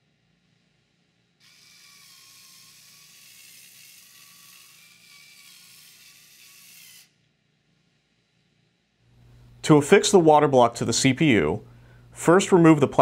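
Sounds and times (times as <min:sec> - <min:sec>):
cordless electric screwdriver whirring: 0:01.4 - 0:07.1.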